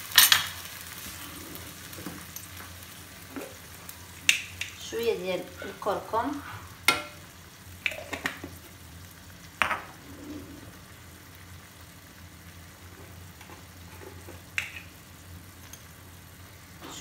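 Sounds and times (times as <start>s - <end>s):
sauce sizzling in a frying pan: 0.0s - 17.0s.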